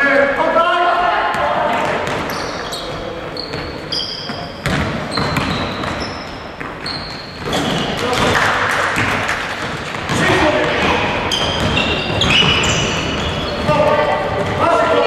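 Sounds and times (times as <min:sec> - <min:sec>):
players' voices: 0:00.0 - 0:15.0
basketball bouncing: 0:01.3 - 0:15.0
shoes squeaking on gym floor: 0:01.8 - 0:08.2, 0:11.2 - 0:14.6.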